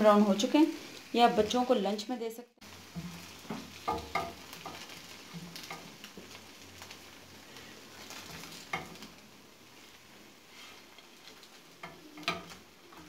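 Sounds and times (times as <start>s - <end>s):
oil sizzling: 0.0s - 13.0s
spatula scraping frying pan: 2.7s - 7.1s.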